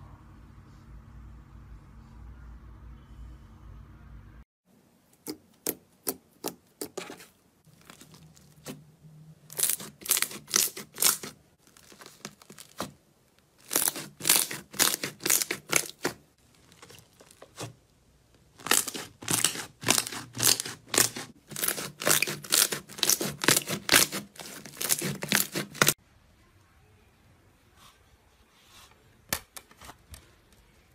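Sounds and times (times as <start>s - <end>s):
slime popping and crackling: 9.5s - 13.0s, 13.6s - 17.8s, 18.5s - 26.0s.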